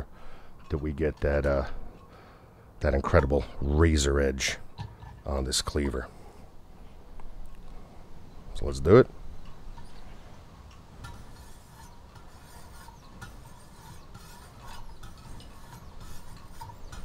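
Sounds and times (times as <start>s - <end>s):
stone scraping on steel blade: 11.0s - 17.0s.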